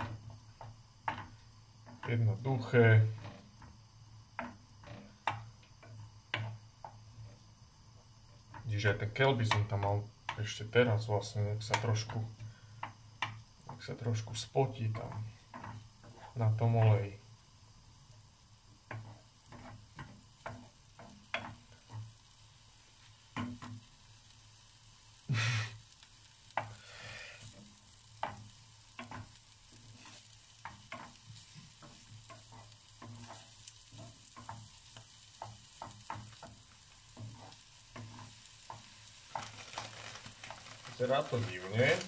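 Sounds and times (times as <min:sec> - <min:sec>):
onion sizzling in oil: 0:00.0 - 0:42.0
wooden spoon scraping a pan: 0:13.6 - 0:17.2, 0:18.8 - 0:24.0, 0:26.4 - 0:42.0.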